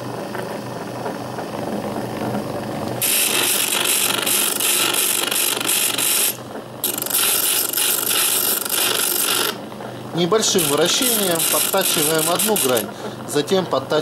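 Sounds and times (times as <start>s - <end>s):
electric motor humming: 3.0s - 13.3s
harsh hissing grind: 10.5s - 12.9s.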